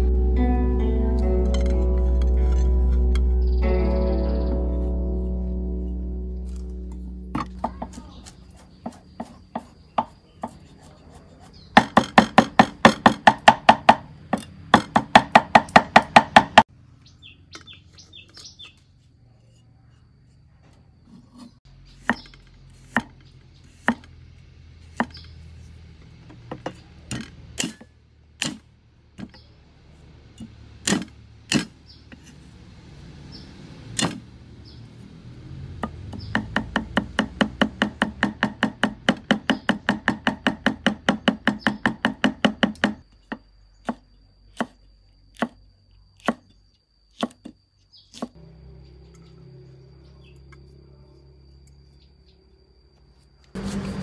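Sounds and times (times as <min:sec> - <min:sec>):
cleaver chopping on wooden board: 0:07.3 - 0:16.7, 0:22.0 - 0:24.1, 0:24.9 - 0:25.3, 0:26.3 - 0:28.6, 0:30.8 - 0:31.8, 0:34.0 - 0:34.2, 0:35.8 - 0:43.0, 0:45.4 - 0:45.6, 0:47.2 - 0:48.4.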